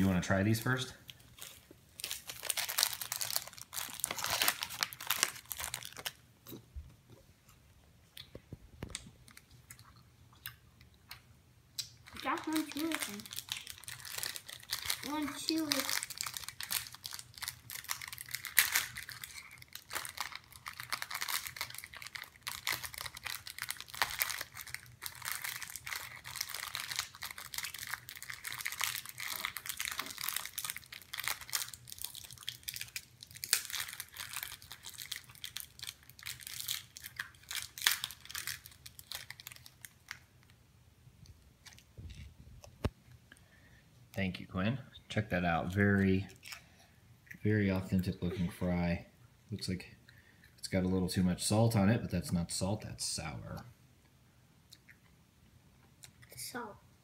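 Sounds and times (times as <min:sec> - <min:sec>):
plastic wrapper crinkling: 0:00.0 - 0:06.3, 0:12.0 - 0:40.6.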